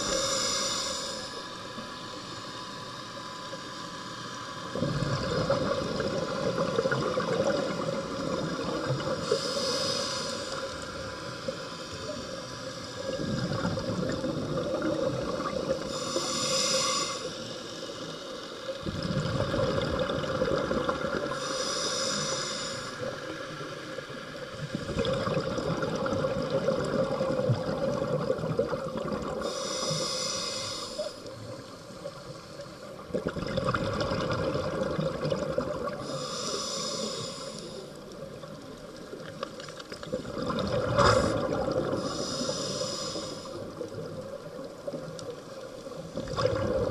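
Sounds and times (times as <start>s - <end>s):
regulator inhalation hiss: 0.0s - 4.8s, 7.5s - 13.2s, 15.5s - 18.8s, 21.1s - 24.7s, 29.3s - 33.0s, 35.9s - 38.2s, 41.0s - 44.1s
exhalation bubbling underwater: 18.8s - 21.3s, 24.8s - 29.4s, 33.1s - 36.0s, 40.1s - 42.0s, 46.2s - 46.9s.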